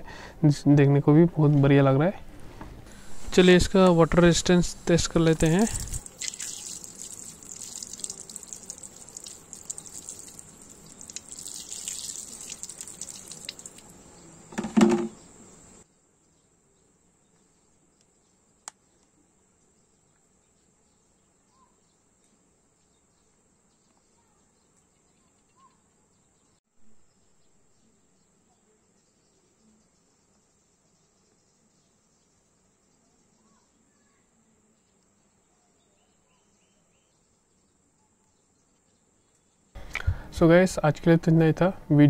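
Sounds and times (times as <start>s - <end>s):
water splashing onto plastic case: 5.4s - 13.9s.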